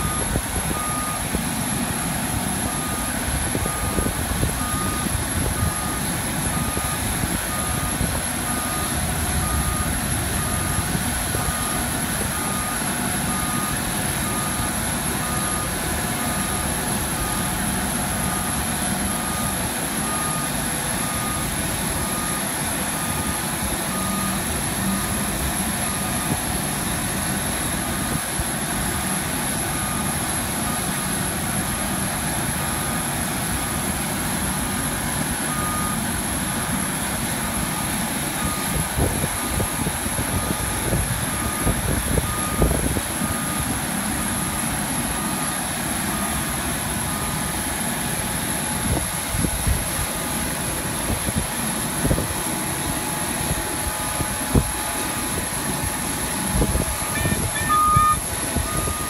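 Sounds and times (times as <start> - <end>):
motion warning beeper: 0.0 - 1.4, 2.0 - 26.4, 35.5 - 36.1, 37.8 - 38.8, 41.3 - 47.4, 56.6 - 59.0.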